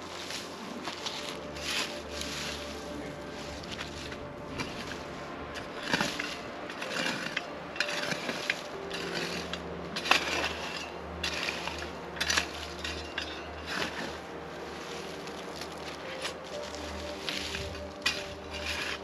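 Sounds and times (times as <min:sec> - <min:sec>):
shovel scraping ash and dirt: 0:00.0 - 0:19.0.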